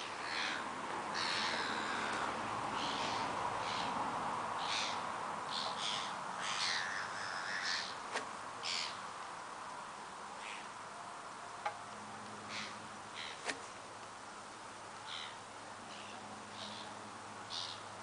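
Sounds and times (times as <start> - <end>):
gulls calling: 0.0 - 9.1, 12.4 - 13.7, 15.0 - 18.0.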